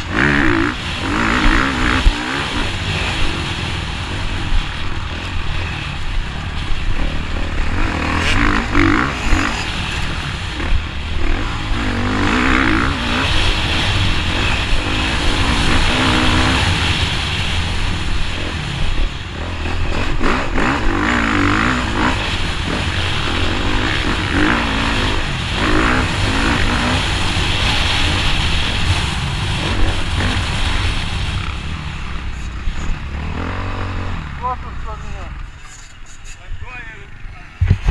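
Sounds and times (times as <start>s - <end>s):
motocross bike engine revving: 0.0s - 37.9s.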